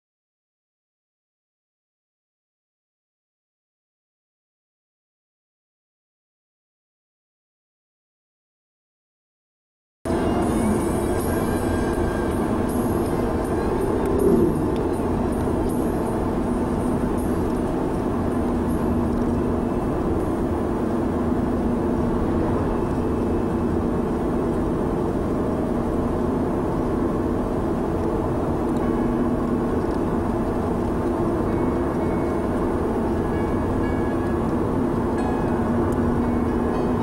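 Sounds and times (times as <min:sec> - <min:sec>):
car cabin engine hum: 0:10.1 - 0:37.0.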